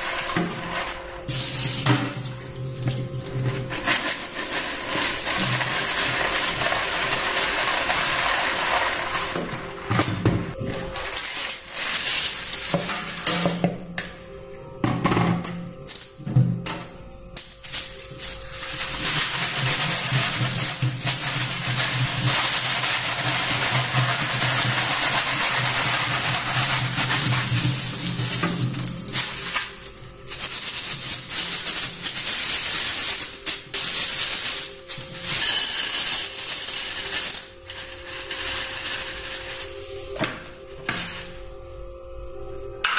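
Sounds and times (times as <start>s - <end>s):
tap water running: 0.0s - 10.6s, 18.5s - 34.2s.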